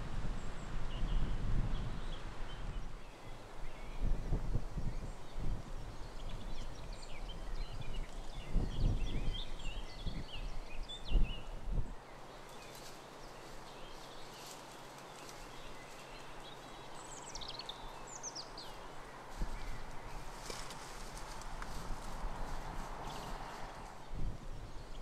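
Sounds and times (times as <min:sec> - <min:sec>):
small birds singing: 0:00.4 - 0:25.0
ponies crunching grass: 0:12.5 - 0:16.7, 0:18.6 - 0:24.0.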